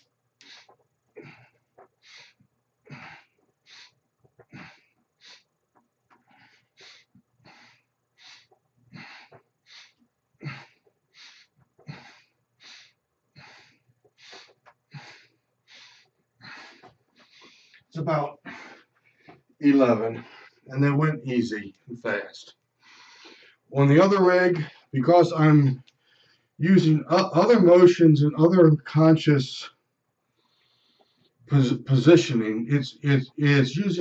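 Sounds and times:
man breathing hard: 0.0 - 5.5, 6.1 - 19.5, 22.8 - 23.7.

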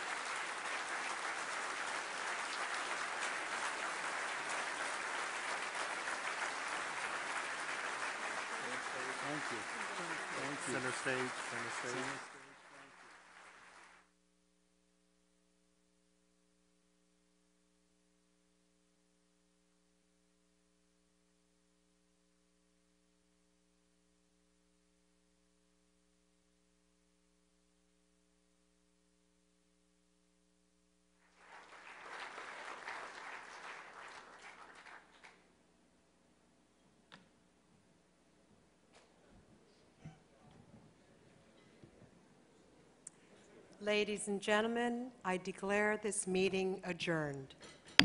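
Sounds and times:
audience applause: 0.0 - 14.1, 31.2 - 35.4.

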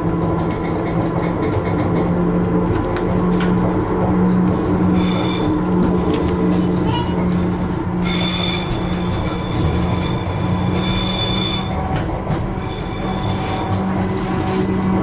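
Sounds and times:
diesel engine drone: 0.0 - 15.0
train wheels squealing on track: 4.8 - 5.7, 8.0 - 11.9, 12.5 - 14.0.

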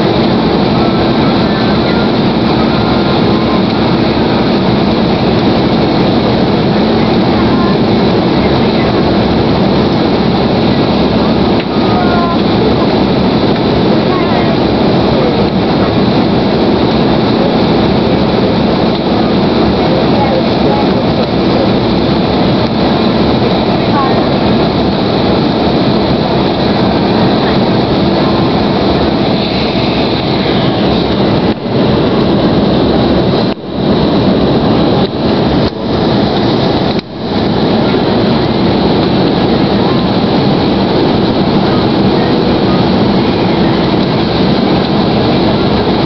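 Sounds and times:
air rushing past fuselage: 0.0 - 46.0
jet engines humming: 0.0 - 46.0.

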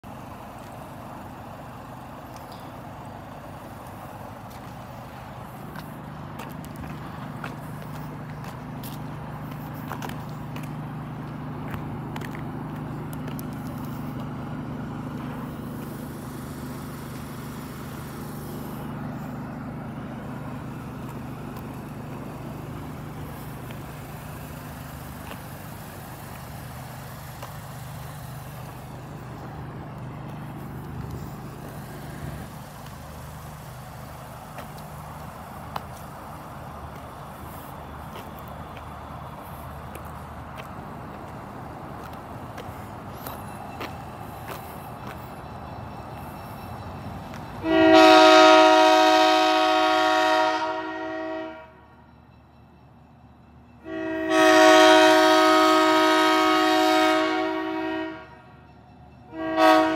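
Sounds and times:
diesel engine idling: 0.0 - 58.7.

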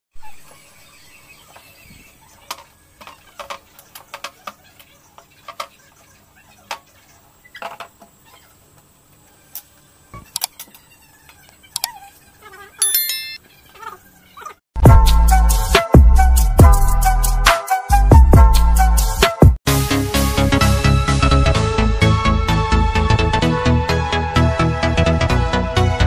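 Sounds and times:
short high ringing: 12.8 - 13.4.

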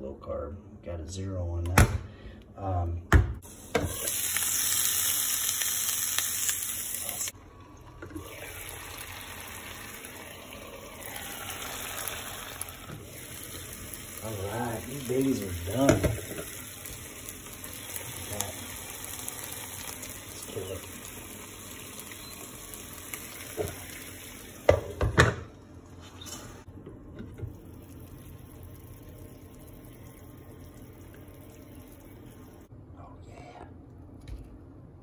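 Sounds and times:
sausages sizzling in a frying pan: 3.4 - 7.4, 8.1 - 25.5.

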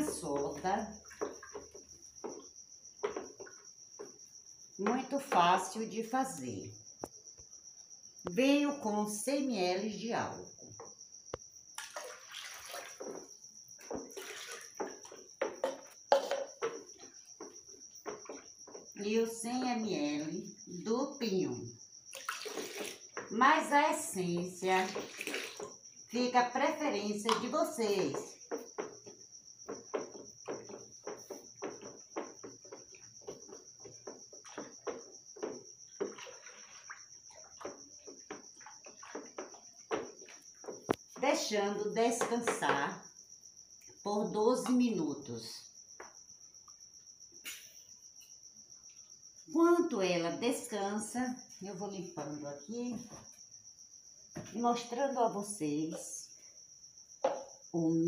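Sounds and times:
spoon stirring sloshing liquid: 0.0 - 5.1, 11.8 - 18.9, 22.1 - 23.3, 24.7 - 26.0, 27.3 - 41.2
liquid pouring into bucket: 11.8 - 15.2, 22.1 - 23.1, 24.9 - 25.8, 34.3 - 40.9.

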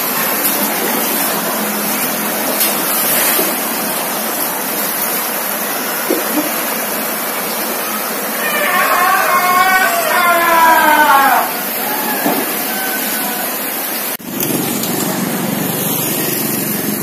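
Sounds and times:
floodwater rushing: 0.0 - 17.0.

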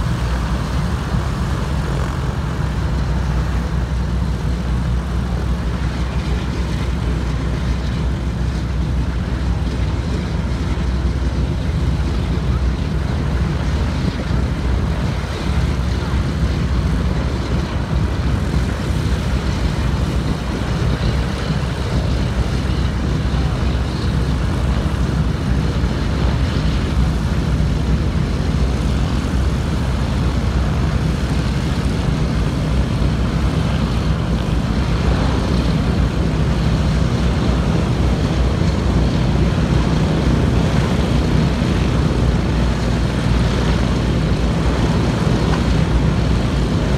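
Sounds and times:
propeller aircraft engines droning: 0.0 - 46.9.

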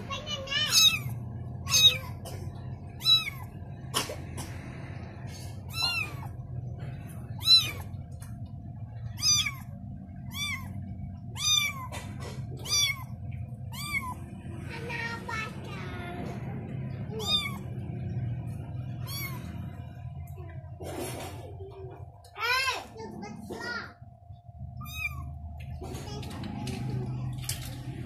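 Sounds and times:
kitten mewing: 0.5 - 3.7, 5.6 - 6.4, 7.3 - 8.2, 9.0 - 14.4, 17.0 - 20.0, 24.8 - 25.8.

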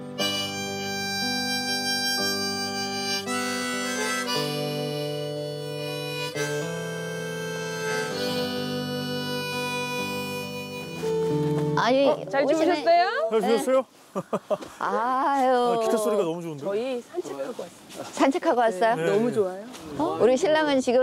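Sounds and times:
harmonica melody: 0.0 - 12.8
strummed acoustic guitar: 8.0 - 12.2.

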